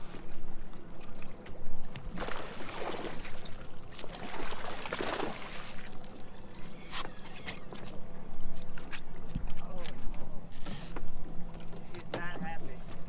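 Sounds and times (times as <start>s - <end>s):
fish splashing water: 2.1s - 6.3s.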